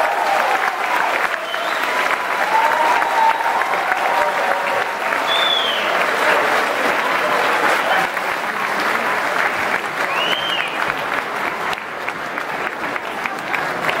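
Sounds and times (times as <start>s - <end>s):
audience applauding: 0.0s - 14.0s
high whistle: 5.3s - 5.9s.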